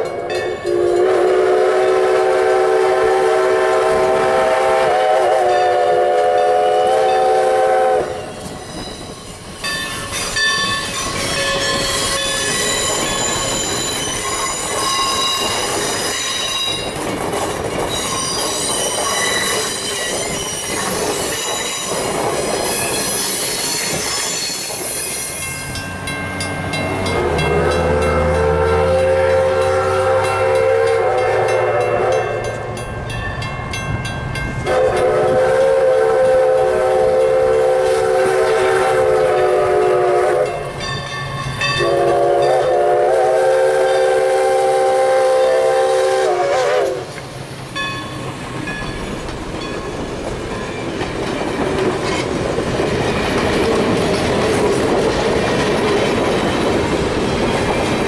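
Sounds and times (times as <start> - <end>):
steam whistle blasts: 0.6 - 8.4, 27.2 - 32.4, 34.6 - 40.7, 41.8 - 47.2
train wheels squealing: 8.1 - 17.0, 17.8 - 33.5
train wheels clacking over rail joints: 8.3 - 33.2, 47.1 - 58.0.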